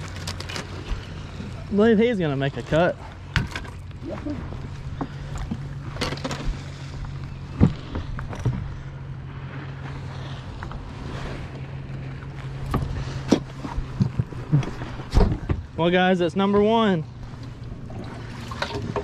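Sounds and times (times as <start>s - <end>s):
knocks and thumps on boat deck: 3.3s - 8.8s, 12.6s - 15.8s, 16.4s - 16.9s, 17.8s - 19.0s.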